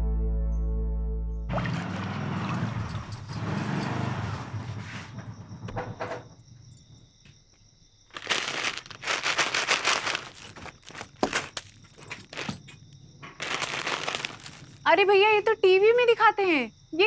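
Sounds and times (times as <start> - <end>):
plastic packets crinkling: 8.1 - 12.8, 13.4 - 14.8.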